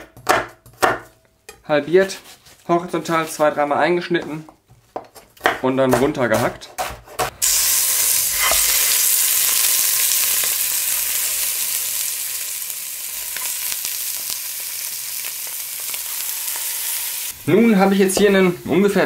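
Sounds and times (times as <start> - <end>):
chicken sizzling in a hot pot: 7.4 - 17.9.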